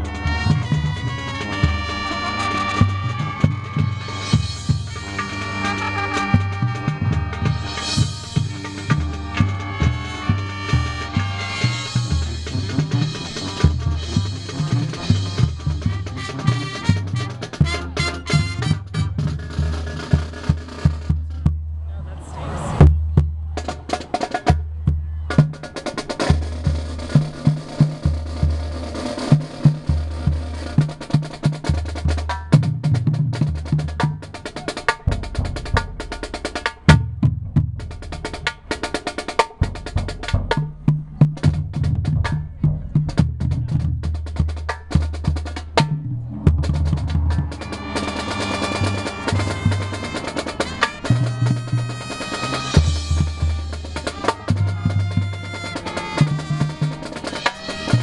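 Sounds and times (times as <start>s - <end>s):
snare drum rolls: 0.0s - 21.6s, 22.6s - 58.0s
marching band music: 0.0s - 58.0s
bass drum strikes: 35.0s - 50.1s.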